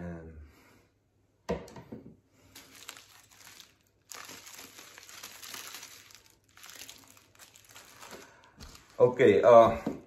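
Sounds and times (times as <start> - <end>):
plastic wrapping crinkling: 2.4 - 9.6.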